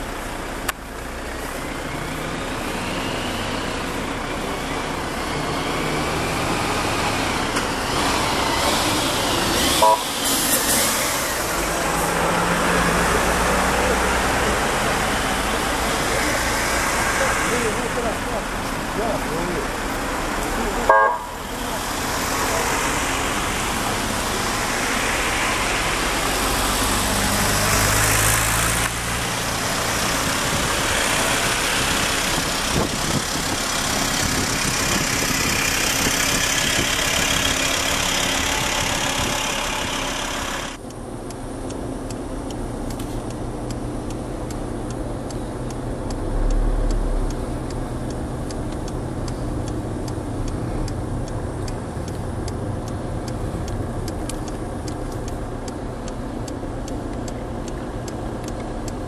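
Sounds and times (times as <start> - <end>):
car engines running: 0.0 - 59.0
road noise: 0.0 - 59.0
faint regular ticking: 27.7 - 59.0.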